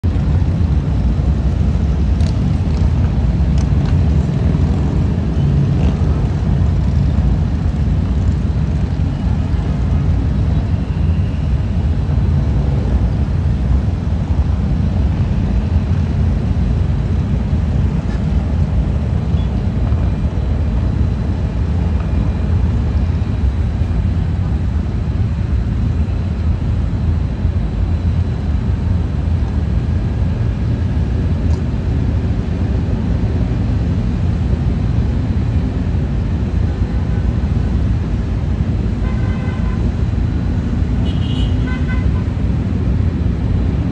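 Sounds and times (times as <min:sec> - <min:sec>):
city traffic: 0:00.0 - 0:43.9
motorcycles rumbling by: 0:00.1 - 0:24.8.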